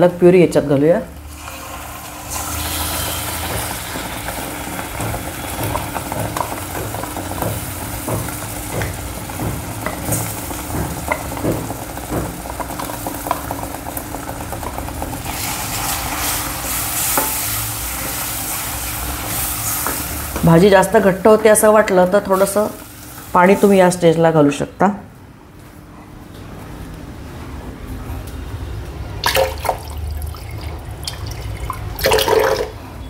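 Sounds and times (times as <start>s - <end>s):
food sizzling in a pan: 1.2s - 23.8s.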